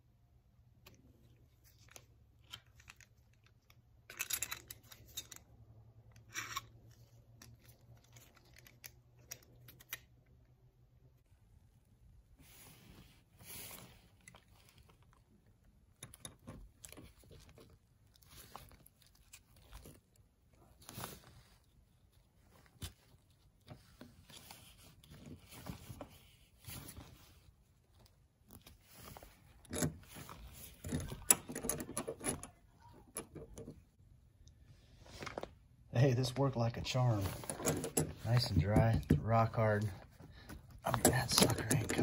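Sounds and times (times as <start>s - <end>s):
padlock hasp clicks and scrapes: 6.1s - 10.1s, 29.4s - 33.8s, 37.4s - 39.0s, 40.5s - 42.0s.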